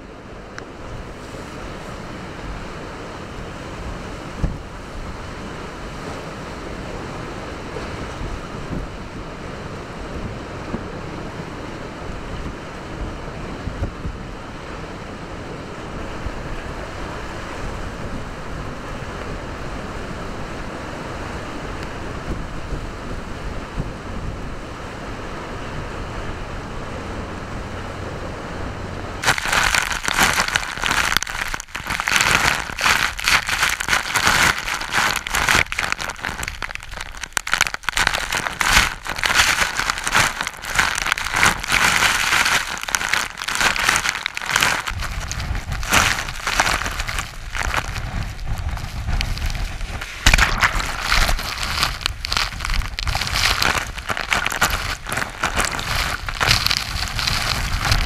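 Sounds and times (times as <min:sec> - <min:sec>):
strong wind gusts: 0:00.0 - 0:58.0
spray and rain hitting camera: 0:29.2 - 0:58.0
surf rushing: 0:29.2 - 0:58.0
waves crashing against wall: 0:29.2 - 0:58.0.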